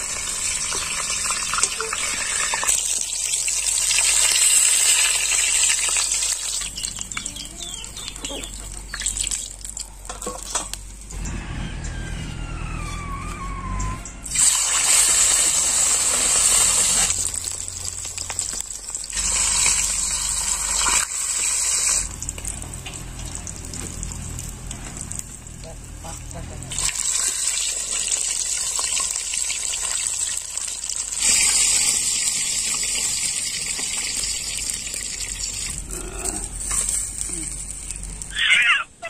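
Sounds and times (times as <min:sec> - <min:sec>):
chicken sizzling in oil: 0:00.0 - 0:09.6, 0:14.3 - 0:25.6, 0:26.7 - 0:35.9.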